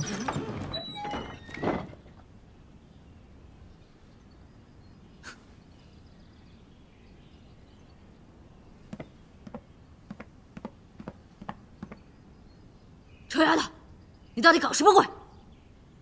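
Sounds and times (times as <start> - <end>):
soft footsteps: 8.9 - 12.0.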